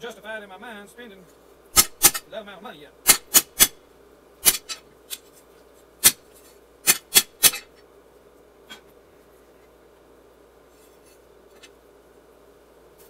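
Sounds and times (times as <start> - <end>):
hammer striking steel on anvil: 1.8 - 2.2, 3.1 - 3.8, 4.4 - 4.8, 6.8 - 7.7.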